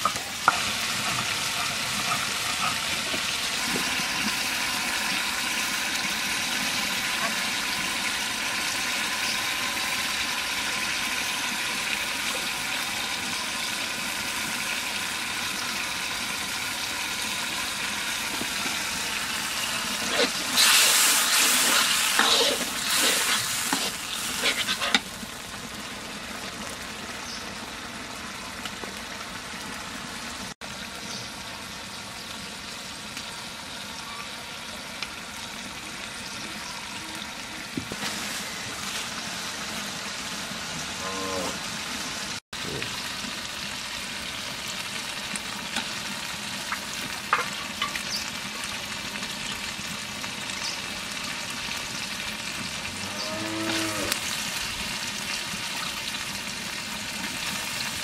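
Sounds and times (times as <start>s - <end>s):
metal ladle scraping a pot: 0.0s - 3.6s, 19.9s - 25.0s
curry sizzling and bubbling: 0.0s - 58.0s.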